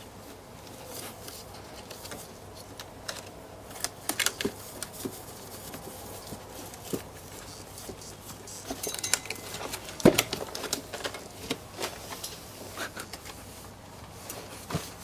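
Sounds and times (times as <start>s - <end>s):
wicker basket creaking and rustling: 0.0s - 15.0s.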